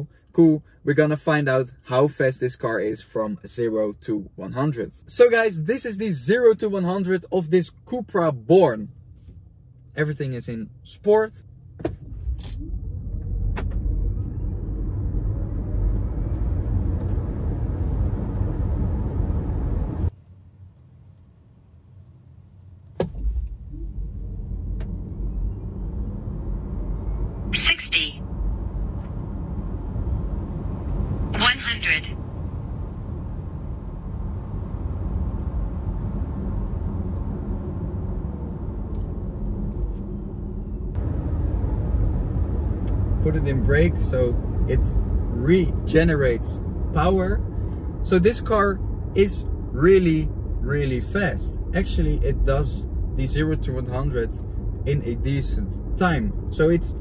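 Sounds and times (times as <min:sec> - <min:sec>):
road and wind noise: 0:00.0 - 0:57.0
tyre and wind noise in car cabin: 0:11.7 - 0:20.1, 0:22.8 - 0:27.3.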